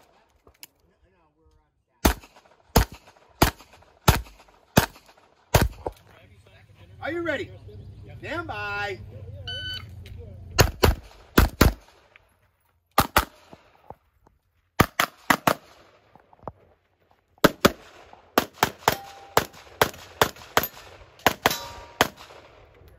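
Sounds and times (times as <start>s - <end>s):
handgun shots in quick pairs: 2.0s - 6.0s, 10.6s - 12.0s, 13.0s - 13.6s, 14.8s - 15.9s, 17.4s - 22.6s.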